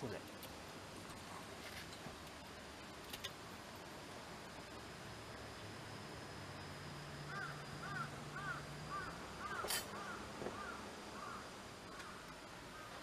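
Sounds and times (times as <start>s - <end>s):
bird calling: 7.3s - 13.0s.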